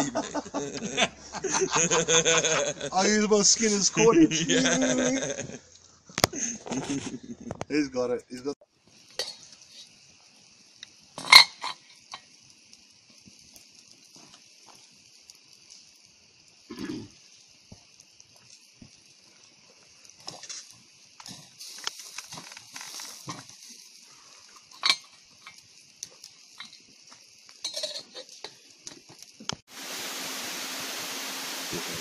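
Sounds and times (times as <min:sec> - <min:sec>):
campfire crackling: 0:00.0 - 0:32.0
steady hiss: 0:00.0 - 0:32.0
metal lid clinks and knocks: 0:27.6 - 0:28.2.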